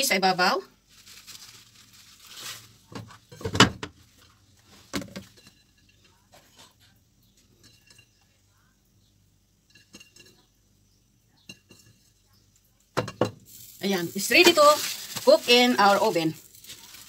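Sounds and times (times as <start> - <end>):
cheese sprinkled by hand: 0.9 - 2.9, 13.5 - 17.0.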